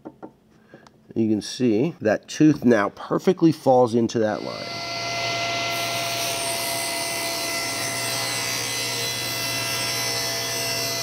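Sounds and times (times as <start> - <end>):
table saw cutting wood: 4.3 - 11.0.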